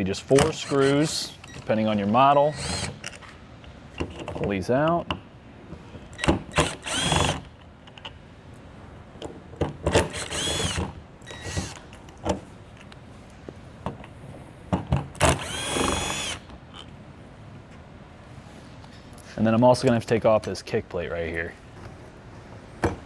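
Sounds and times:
drill clicks: 6.2s - 7.5s, 9.9s - 11.8s, 15.2s - 16.4s
cordless drill whining: 6.5s - 7.4s, 10.0s - 11.8s, 15.2s - 16.5s.

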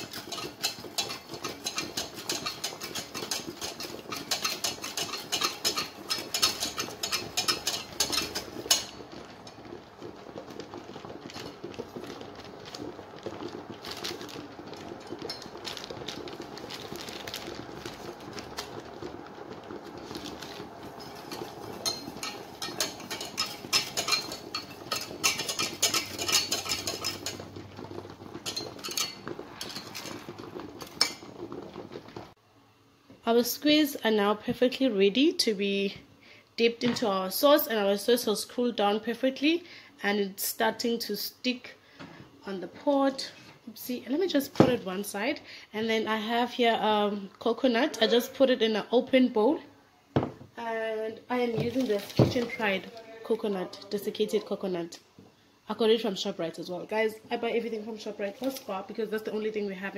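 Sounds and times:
whisk clinking against saucepan: 0.0s - 9.1s, 20.9s - 31.6s.

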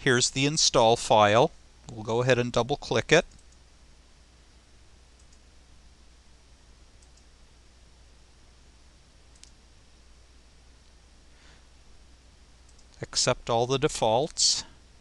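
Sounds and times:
low hiss and hum: 0.0s - 15.0s
computer mouse clicks: 3.3s - 3.6s, 5.2s - 5.5s, 7.0s - 7.3s, 9.3s - 9.6s, 12.7s - 13.0s.

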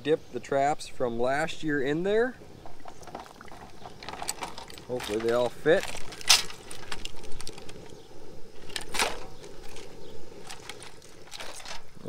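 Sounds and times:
steady hiss: 0.0s - 12.0s
metal traps and chains rattling: 2.6s - 7.9s, 8.6s - 12.0s.

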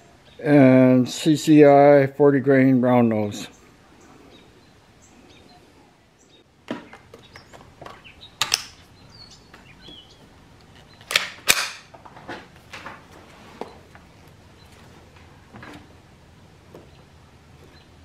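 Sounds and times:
small metallic rifle clicks: 11.0s - 11.9s
rifle bolt clacking: 11.1s - 11.9s.

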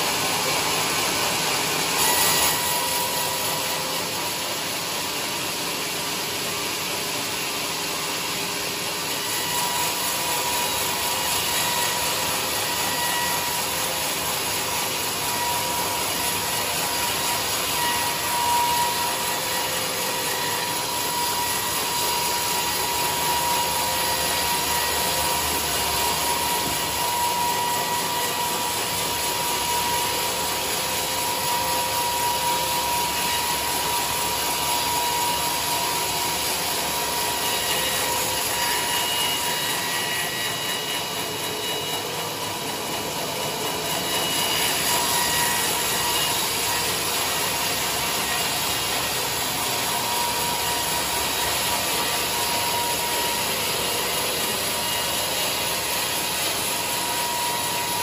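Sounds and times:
band saw cutting log: 0.0s - 58.0s.

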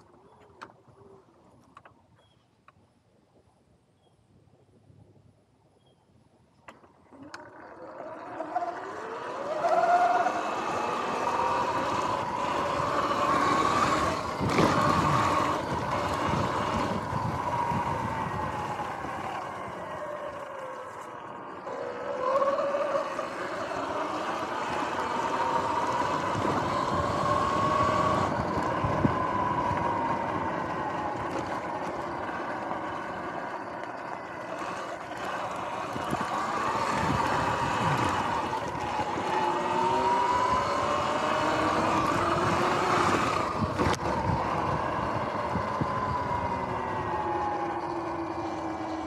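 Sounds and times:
electric motor whining: 7.1s - 49.0s
tyre and wind noise: 8.9s - 21.8s, 22.5s - 49.0s.

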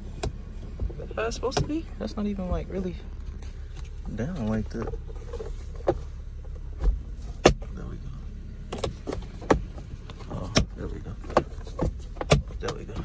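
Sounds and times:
sun visor clicks and knocks: 0.0s - 1.8s, 4.7s - 7.7s, 8.7s - 13.0s
low steady rumble: 0.0s - 13.0s.

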